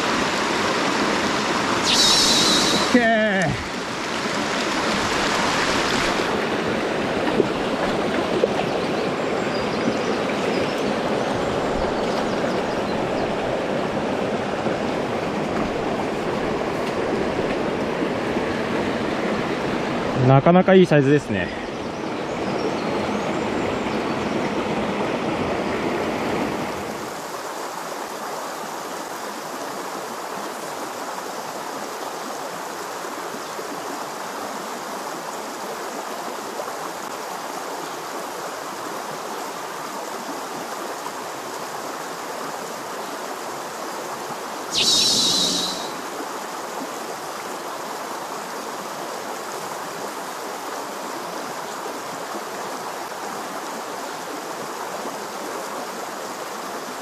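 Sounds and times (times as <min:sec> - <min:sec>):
stream flowing over rocks: 0:00.0 - 0:57.0
sharp high-pitched sound: 0:01.8 - 0:03.0, 0:44.7 - 0:46.1.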